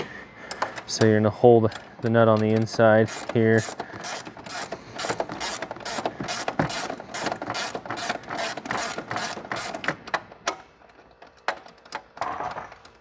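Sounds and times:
ratchet wrench clicking: 1.7 - 9.9.

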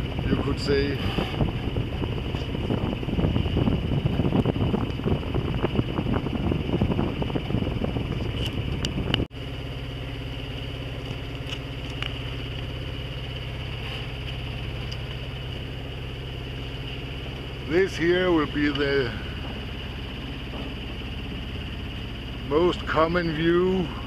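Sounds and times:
wind buffeting microphone: 0.0 - 9.3, 13.6 - 22.5
boat engine running: 0.0 - 24.0.

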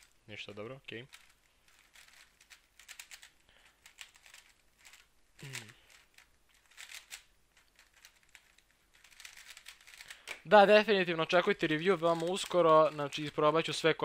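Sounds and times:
puzzle cube clicking: 1.0 - 10.5
person humming: 5.4 - 5.8.

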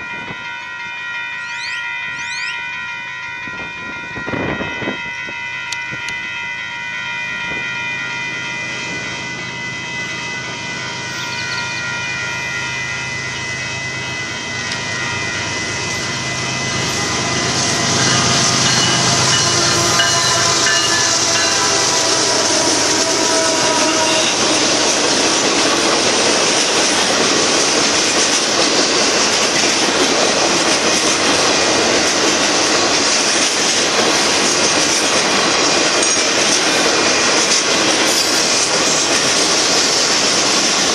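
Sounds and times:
crossing bell ringing: 0.0 - 40.9
locomotive hum: 0.0 - 40.9
freight cars rumbling past: 8.9 - 28.0.

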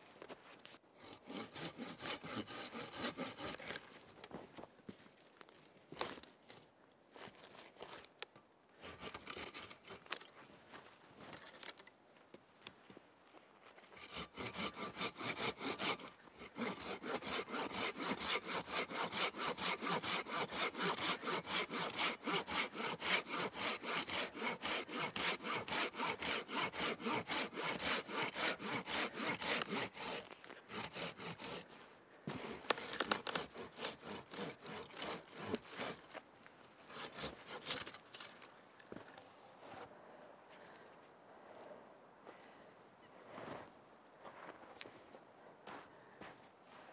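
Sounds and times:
hand saw cutting wood: 1.0 - 3.9, 8.8 - 10.3, 14.0 - 36.2, 36.9 - 38.5.

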